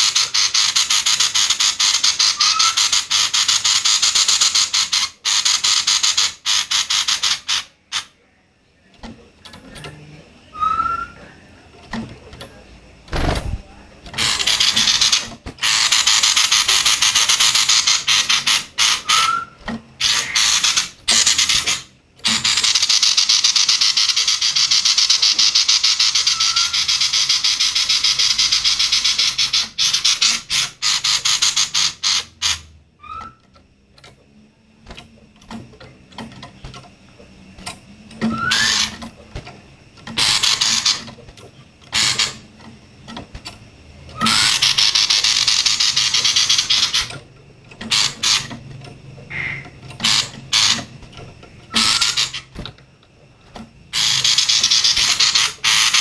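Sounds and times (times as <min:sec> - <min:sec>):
bird harsh rattling calls: 0:00.0 - 0:08.1, 0:14.1 - 0:33.4, 0:38.3 - 0:39.0, 0:40.1 - 0:41.1, 0:44.1 - 0:47.2, 0:47.8 - 0:48.6, 0:49.3 - 0:51.0, 0:51.7 - 0:52.6, 0:53.9 - 0:56.0.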